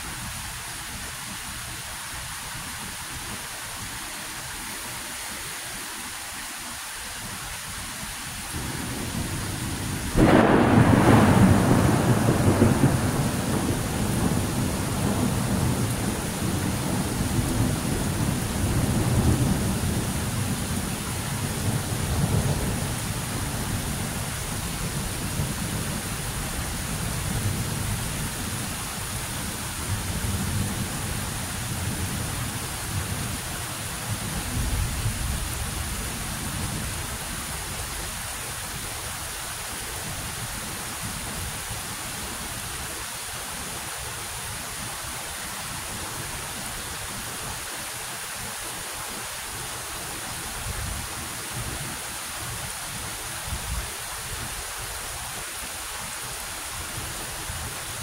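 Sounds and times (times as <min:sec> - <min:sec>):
steady rain: 0:00.0 - 0:58.0
thunder rumbling: 0:08.6 - 0:28.7
thunder crack: 0:10.2 - 0:16.0.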